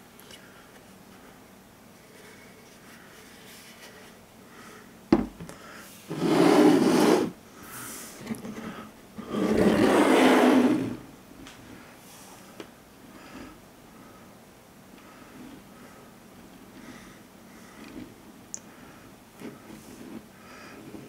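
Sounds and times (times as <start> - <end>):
statue knocking on table: 5.1 - 5.5
statue bases scraping across table: 6.1 - 11.0.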